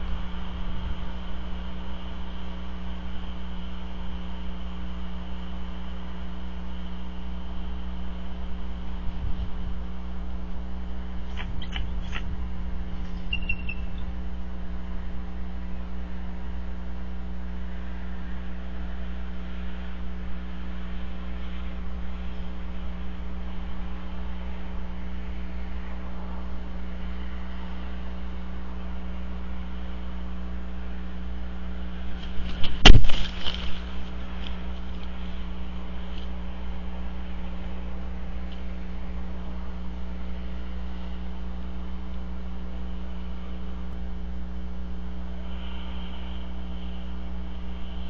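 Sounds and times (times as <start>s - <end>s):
electrical hum with hiss: 0.0s - 48.0s
short high chirp: 13.2s - 14.0s.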